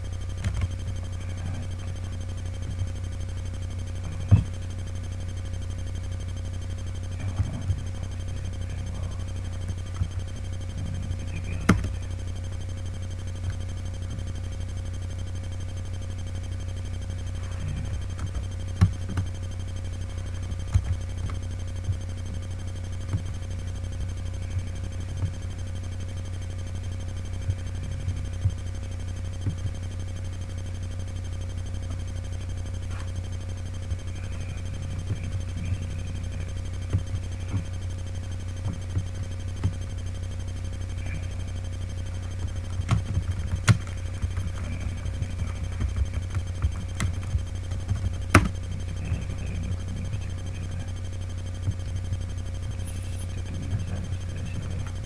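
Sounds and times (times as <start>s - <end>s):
steady low hum: 0.0s - 55.0s
faint high steady tone: 1.0s - 13.8s, 21.4s - 42.8s, 46.8s - 55.0s.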